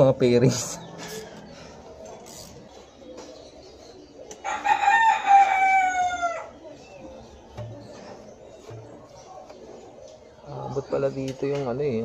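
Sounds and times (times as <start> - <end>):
rooster crowing: 4.4 - 6.5.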